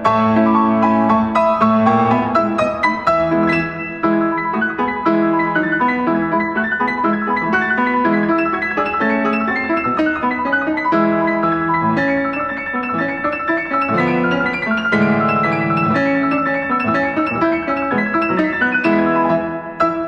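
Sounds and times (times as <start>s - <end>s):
solo piano playing fast: 0.0s - 20.0s.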